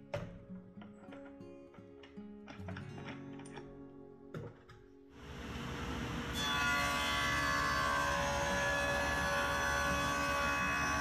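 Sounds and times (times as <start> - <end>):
table saw cutting wood: 5.2 - 11.0.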